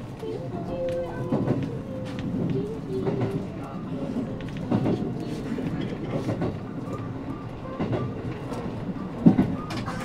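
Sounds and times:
train rumbling: 0.0 - 10.0.

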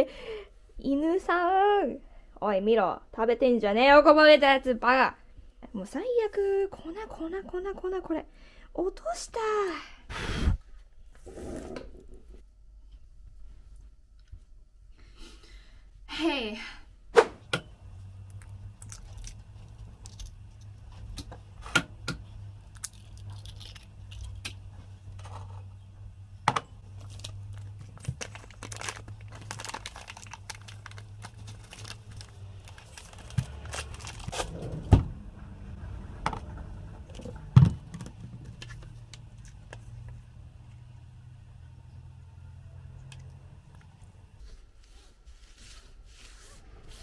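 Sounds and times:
low steady hum: 10.6 - 47.0
plastic bag crinkling: 22.6 - 24.4, 26.8 - 34.5.

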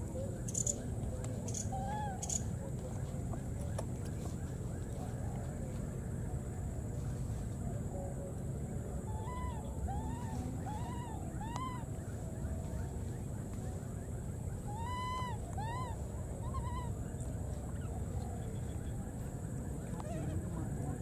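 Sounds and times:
baby monkeys crying: 9.1 - 11.9, 14.7 - 17.0.

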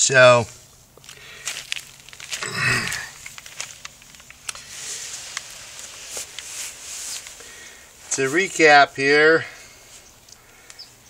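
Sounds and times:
paper rustling: 1.0 - 7.7.

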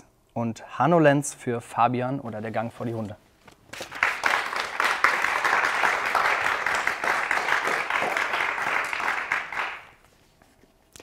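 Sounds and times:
applause: 3.7 - 10.0.

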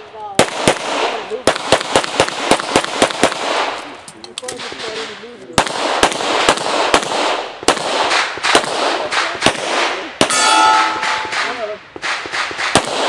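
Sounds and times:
pistol shots: 0.4 - 13.0
steel target ringing: 10.3 - 11.7.

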